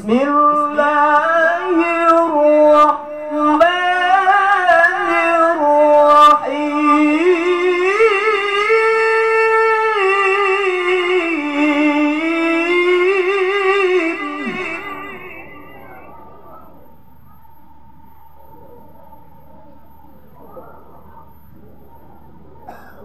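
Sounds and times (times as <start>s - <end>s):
man chanting into a microphone: 0.0s - 16.2s.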